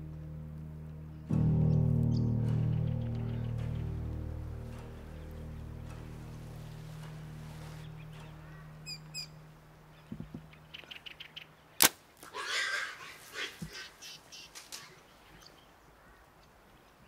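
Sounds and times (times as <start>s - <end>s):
low music drone: 0.0s - 11.8s
birds chirping: 0.0s - 17.0s
harsh squawk-like call: 12.3s - 14.2s.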